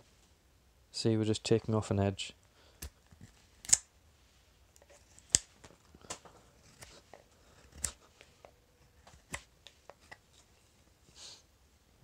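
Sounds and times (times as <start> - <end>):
knife cutting wood: 2.8 - 3.9, 6.3 - 10.2.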